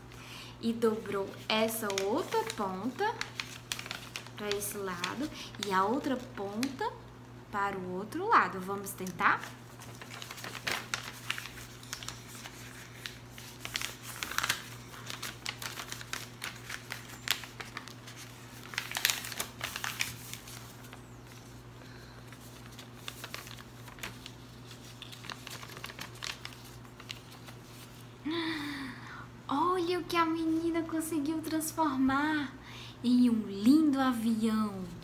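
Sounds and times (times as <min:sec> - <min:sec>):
paper crinkling and rustling: 0:00.7 - 0:07.0, 0:08.8 - 0:28.1.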